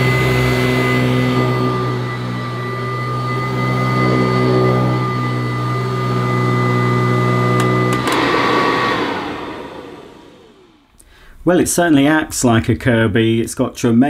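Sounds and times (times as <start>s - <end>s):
vacuum cleaner high-pitched whine: 0.0s - 10.9s.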